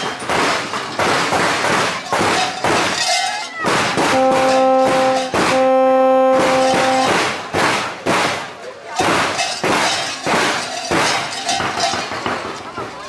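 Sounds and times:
large bells clanging: 0.0s - 7.2s
horn long held note: 4.1s - 7.2s.

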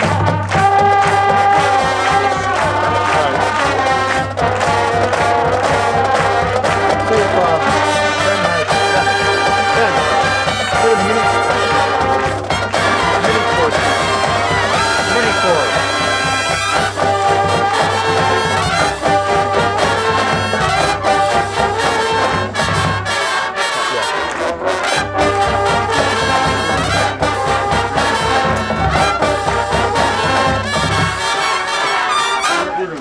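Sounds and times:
drum strokes: 0.0s - 32.4s
brass horns playing melody: 0.0s - 33.0s.

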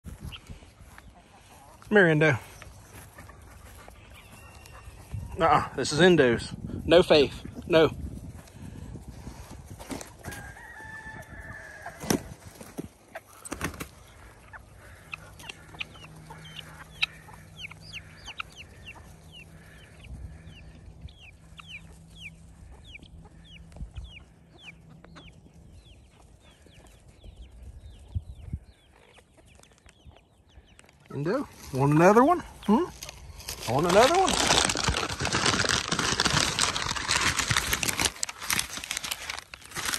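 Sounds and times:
chickens clucking: 0.1s - 37.5s
rooster crowing: 10.2s - 12.2s.

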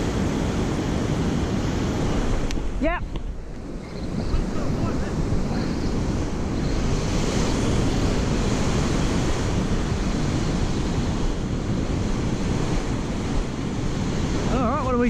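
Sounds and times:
surf breaking on beach: 0.0s - 15.0s
wind buffeting microphone: 0.0s - 15.0s.

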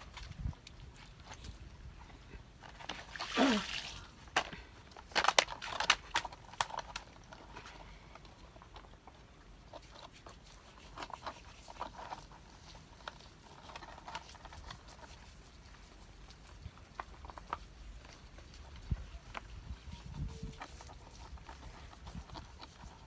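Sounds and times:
water splashes: 3.0s - 4.2s.

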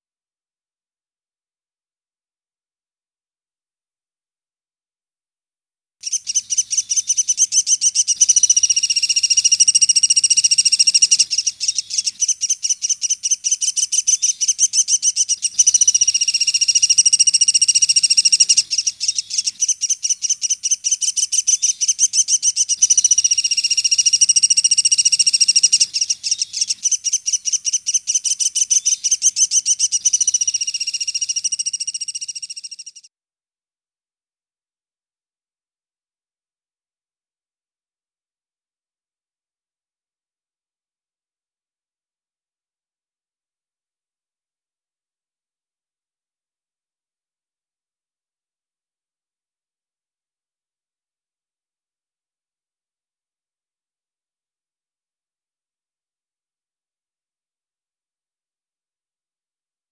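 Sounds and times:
woodpecker trilling: 6.0s - 33.1s.

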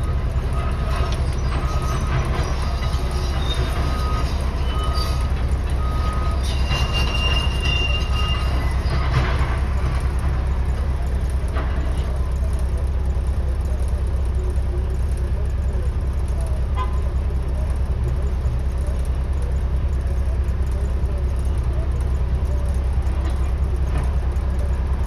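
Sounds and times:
low engine rumble: 0.0s - 25.0s
short faint beeps: 3.6s - 8.8s.

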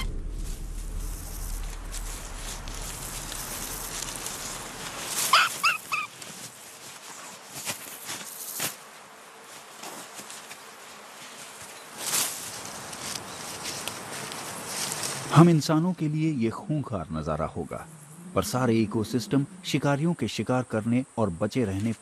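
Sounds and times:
rabbit squealing: 5.1s - 6.2s.

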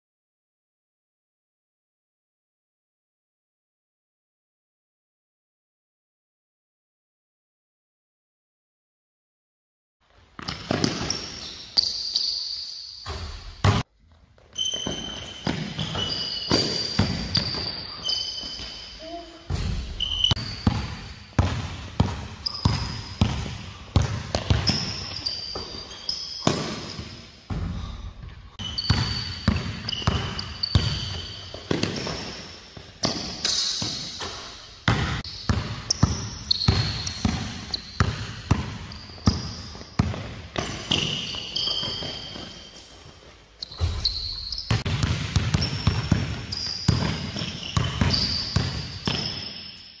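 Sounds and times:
sneakers squeaking on floor: 10.1s - 50.0s
basketballs bouncing in a gym: 10.3s - 50.0s.

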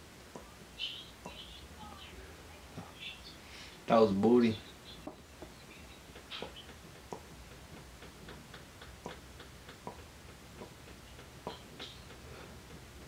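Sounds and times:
soft mouth clicks and pops: 6.1s - 12.2s.

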